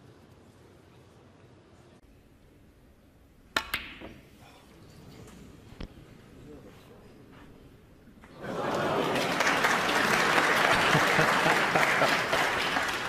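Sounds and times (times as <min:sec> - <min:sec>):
audience applauding: 0:08.3 - 0:13.0.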